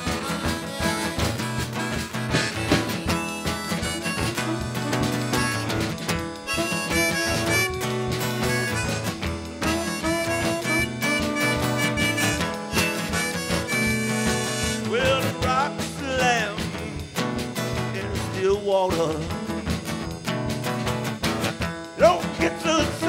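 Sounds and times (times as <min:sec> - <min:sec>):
saxophone solo: 0:00.0 - 0:14.9
drums: 0:00.0 - 0:23.0
strummed acoustic guitar: 0:00.0 - 0:23.0.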